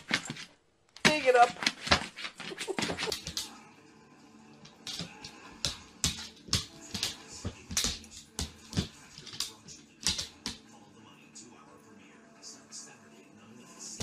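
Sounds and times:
dog claws tapping on wooden floor: 0:00.0 - 0:03.5, 0:04.6 - 0:10.6.

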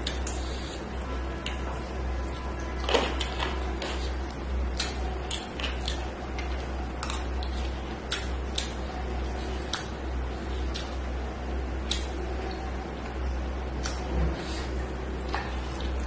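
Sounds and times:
person chewing food: 0:00.0 - 0:11.2, 0:11.8 - 0:13.2
steady low hum: 0:00.0 - 0:16.0
wet mouth clicks and smacks: 0:11.8 - 0:12.1.

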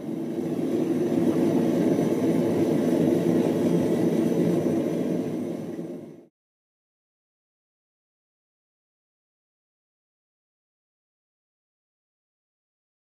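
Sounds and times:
gas forge burner roaring: 0:00.0 - 0:06.3.

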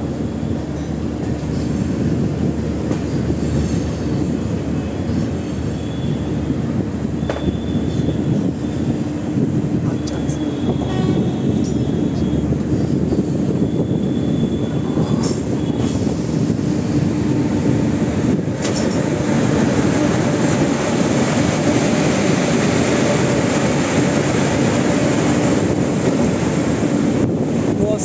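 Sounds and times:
train wheels rumbling on rail: 0:00.0 - 0:28.0
wind rushing: 0:07.8 - 0:28.0.

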